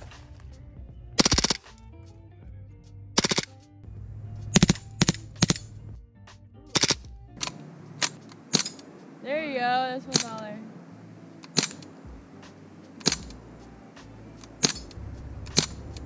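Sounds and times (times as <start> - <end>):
background music: 0.0 - 16.0
handgun shots: 1.2 - 1.8, 6.7 - 8.9, 11.4 - 13.4, 14.0 - 16.0.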